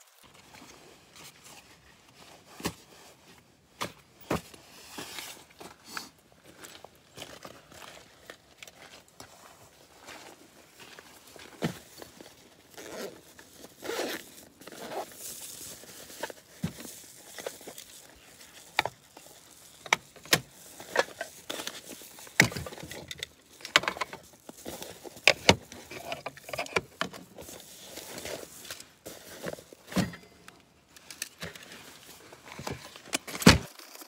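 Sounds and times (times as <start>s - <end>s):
nylon sack rustling: 10.1s - 30.3s.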